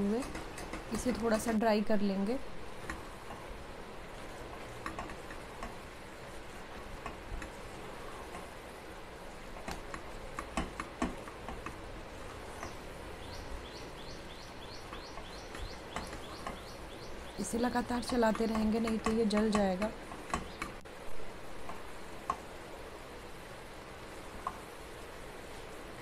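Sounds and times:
bird chirping: 12.5 - 18.6, 20.3 - 20.8.

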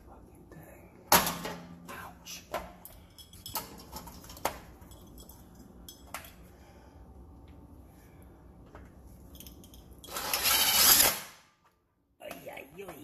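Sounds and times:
metal clinks and knocks: 2.8 - 6.5, 9.2 - 10.3.

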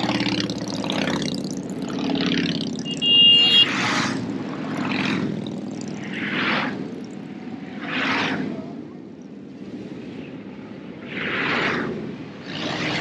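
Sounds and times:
motorcycles passing: 0.0 - 13.0
horn honking: 2.8 - 4.0.

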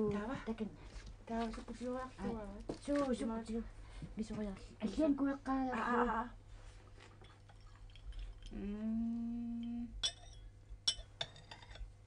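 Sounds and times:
person humming: 8.5 - 10.0.

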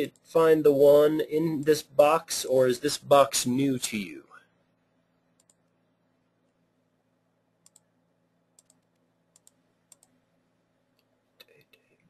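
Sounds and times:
faint steady hum: 0.0 - 12.0
computer mouse clicks: 5.4 - 5.7, 7.6 - 7.9, 8.6 - 10.2.

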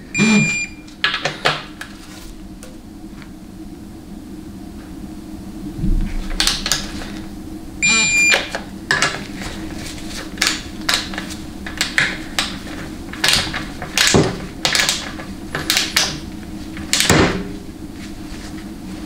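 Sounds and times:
short electronic beep: 0.2 - 0.8, 7.8 - 8.4.

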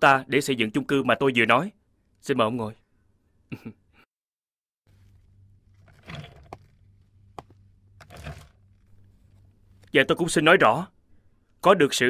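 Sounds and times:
low steady hum: 4.9 - 11.6
chair knocks and shuffles: 5.8 - 6.8, 7.4 - 8.6.

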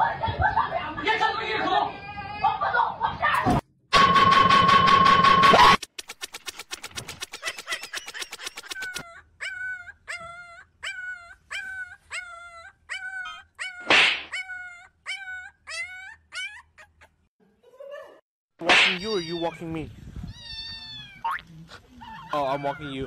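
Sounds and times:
fast run of clicks: 5.8 - 9.0
dog yipping and whimpering: 7.2 - 17.3, 22.0 - 23.0.

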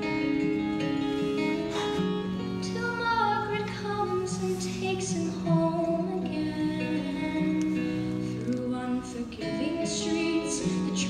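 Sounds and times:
acoustic guitar: 0.0 - 11.0
woman singing: 2.4 - 11.0.

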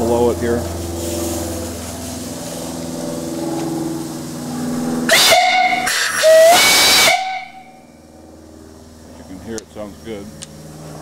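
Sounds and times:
steam hissing: 5.1 - 7.6
steam whistle blasts: 5.1 - 7.9.

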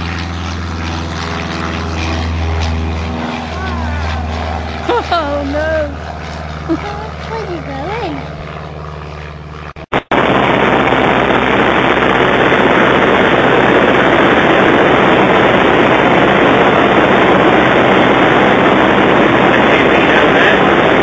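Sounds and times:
aircraft engine and propeller droning: 0.0 - 21.0
rush of airflow: 9.8 - 21.0.

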